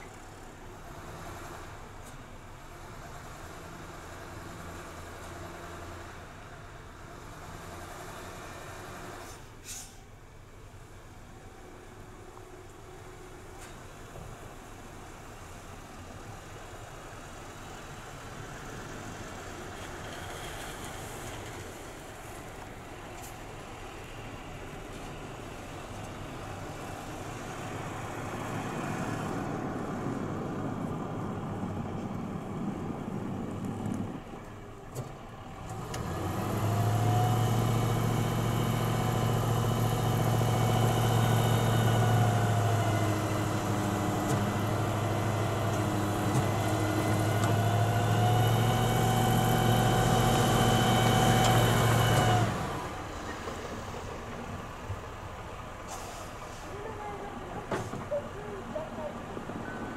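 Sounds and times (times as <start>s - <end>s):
heavy machinery engine droning: 15.2s - 59.9s.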